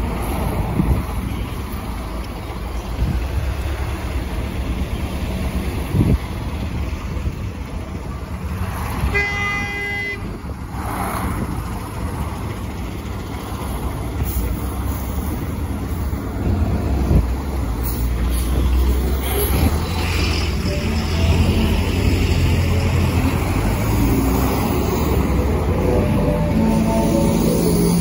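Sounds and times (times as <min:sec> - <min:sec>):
bus engine idling: 0:00.0 - 0:28.0
vehicle horn toot: 0:09.0 - 0:10.3.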